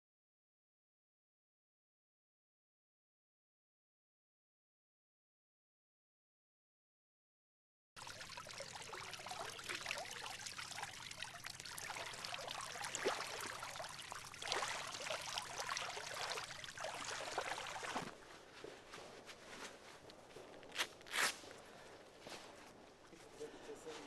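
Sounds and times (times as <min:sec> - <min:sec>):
person wading through river water: 0:08.0 - 0:18.3.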